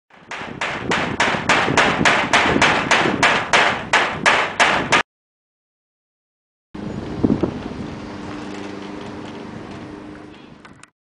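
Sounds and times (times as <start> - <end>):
rapid sharp knocks: 0.1 - 5.1.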